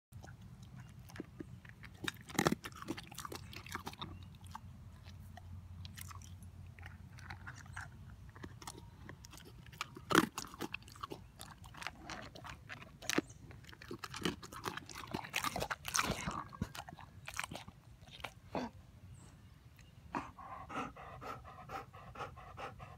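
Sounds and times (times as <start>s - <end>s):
dog crunching dry kibble: 0.2s - 18.4s.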